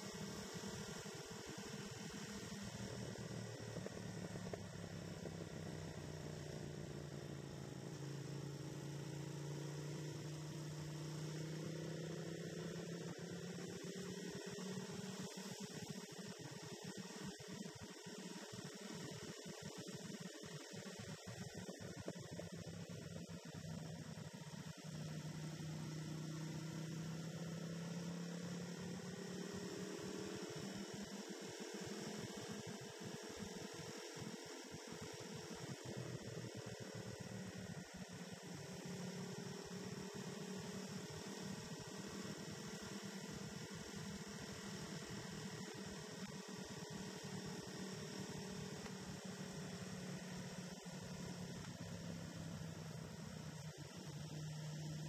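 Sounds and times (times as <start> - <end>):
motorcycle engine droning: 0.0 - 16.4.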